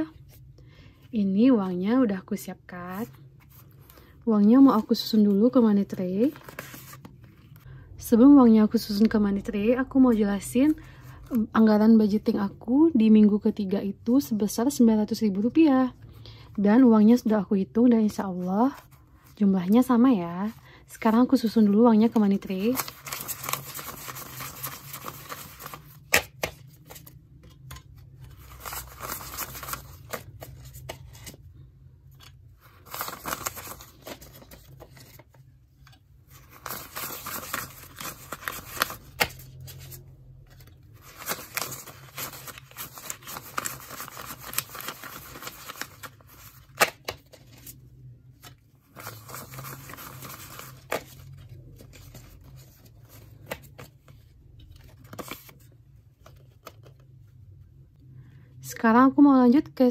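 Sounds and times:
paper banknotes rustling: 22.1s - 31.4s, 32.6s - 35.4s, 36.3s - 47.8s, 48.4s - 54.1s, 54.7s - 55.6s.

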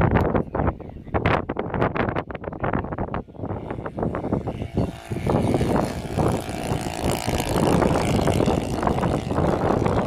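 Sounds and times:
wind rumbling on microphone: 0.0s - 10.0s
model plane engine passing: 3.0s - 10.0s.

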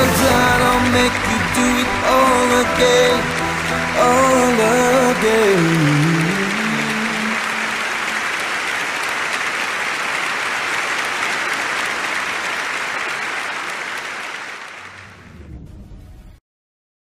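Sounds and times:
audience clapping: 0.0s - 15.2s.

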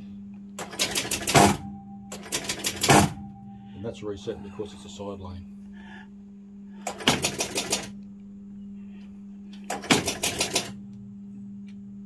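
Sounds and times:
electrical hum: 0.0s - 12.0s
pinball machine rapid mechanical clicks: 0.6s - 3.2s, 6.9s - 7.9s, 9.7s - 10.8s.

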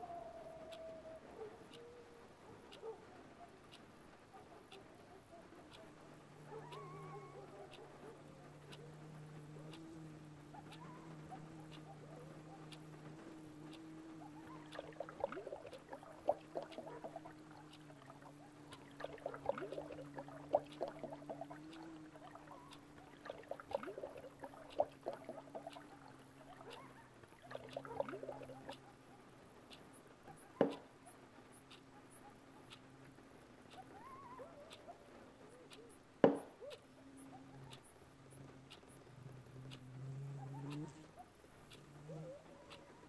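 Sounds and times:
low steady hum: 0.0s - 43.0s
water pouring into a glass: 14.7s - 25.9s.

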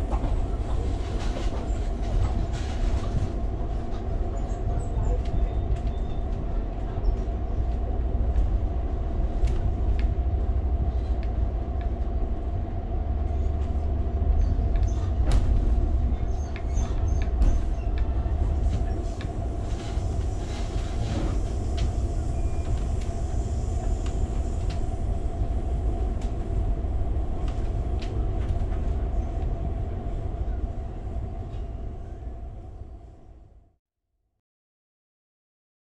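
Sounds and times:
constant hum: 0.0s - 33.5s
train rumbling on rails: 0.0s - 33.8s.

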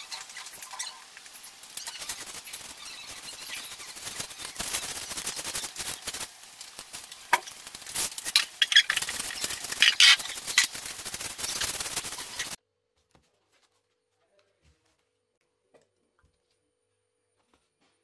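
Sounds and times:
paintbrush scratching on plastic: 0.0s - 6.3s, 7.8s - 12.6s.

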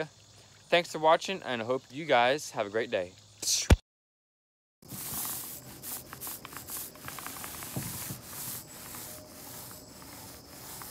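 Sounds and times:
scratching on rough surface: 4.8s - 10.9s.

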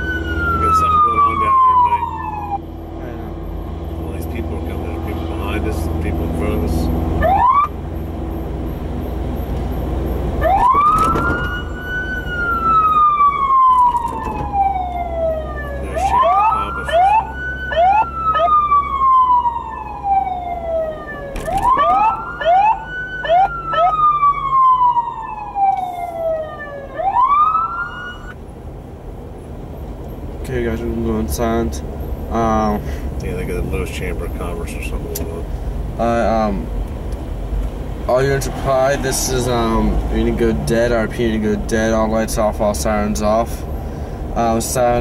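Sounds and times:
police siren wailing: 0.0s - 28.4s
siren short whoops: 10.4s - 28.4s.

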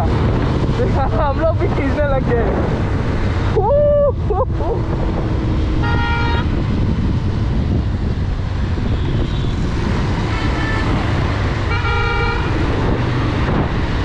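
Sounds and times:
motorcycle engine and wind rumble: 0.0s - 14.0s
vehicle horn honking: 5.8s - 6.6s, 10.3s - 11.0s, 11.7s - 12.6s.

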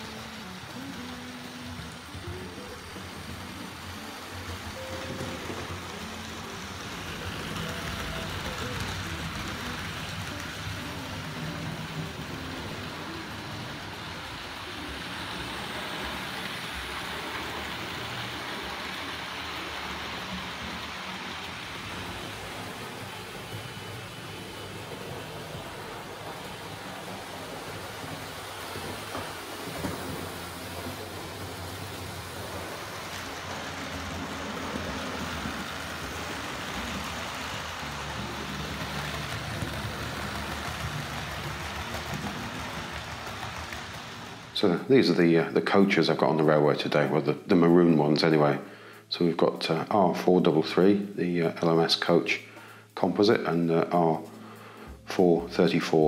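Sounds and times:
model train motor and wheels: 0.0s - 52.3s.

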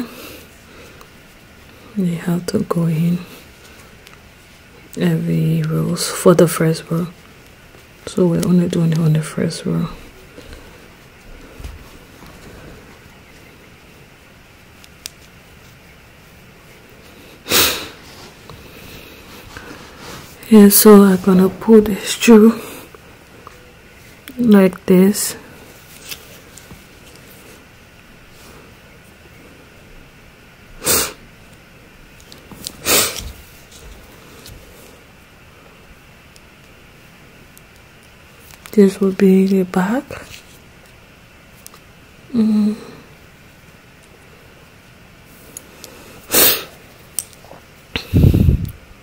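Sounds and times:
loud bursts of air: 30.8s - 31.2s, 32.8s - 33.3s, 46.2s - 46.8s
loud sharp nose sniff: 32.8s - 33.3s.

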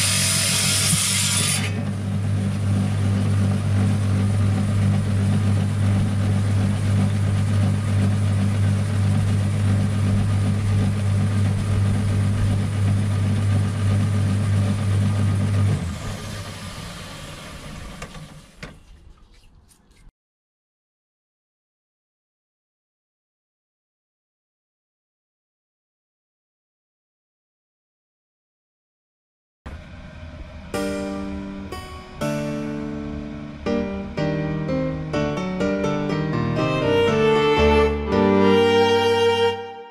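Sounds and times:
saw blade grinding through rock: 0.0s - 1.8s
saw motor humming: 0.0s - 17.6s.

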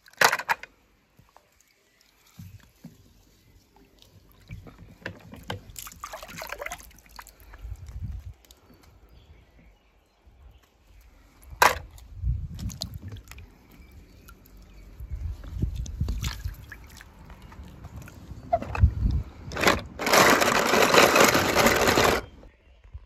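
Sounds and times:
water sloshing in plastic tub: 1.2s - 8.6s, 11.6s - 22.3s.

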